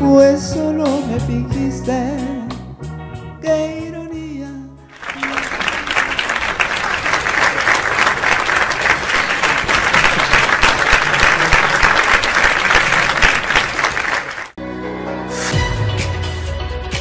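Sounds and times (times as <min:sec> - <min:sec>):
audience clapping: 0:04.9 - 0:14.6.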